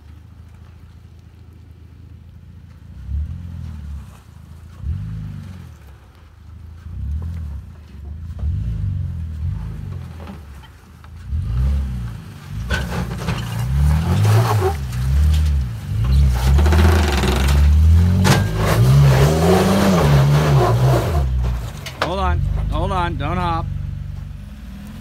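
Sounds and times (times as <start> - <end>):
truck engine revving under load: 6.8 - 10.6, 11.2 - 25.0.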